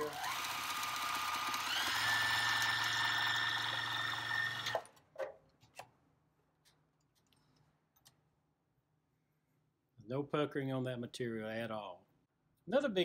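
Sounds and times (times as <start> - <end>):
sewing machine motor whine: 0.0 - 4.9.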